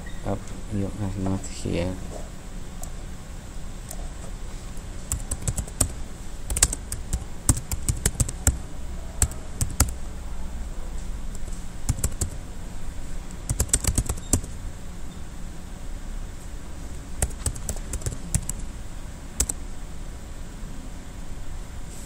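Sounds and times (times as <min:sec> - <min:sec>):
steady low hum: 0:00.0 - 0:22.0
keyboard typing: 0:05.0 - 0:08.6, 0:09.2 - 0:10.0, 0:11.3 - 0:12.4, 0:13.3 - 0:14.6, 0:17.2 - 0:18.7, 0:19.4 - 0:19.6.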